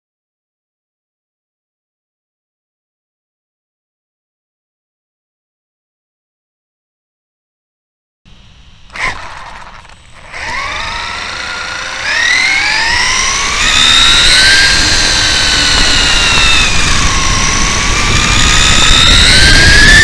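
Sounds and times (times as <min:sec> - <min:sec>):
electric motor whining: 0:08.3 - 0:20.0
tyre and wind noise: 0:08.9 - 0:20.0.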